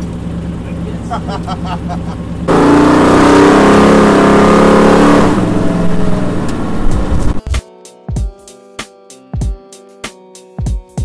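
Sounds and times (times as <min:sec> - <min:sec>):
car engine accelerating hard: 0:00.0 - 0:07.4.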